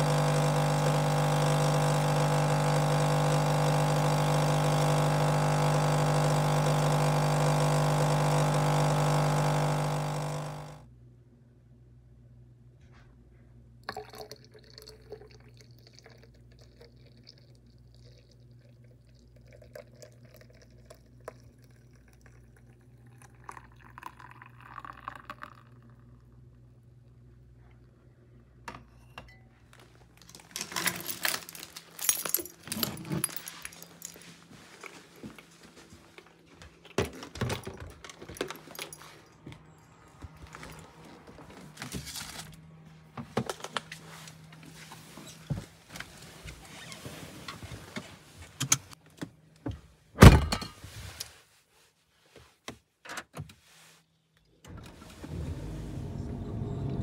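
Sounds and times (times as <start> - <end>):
liquid pouring into jug: 13.8 - 26.4.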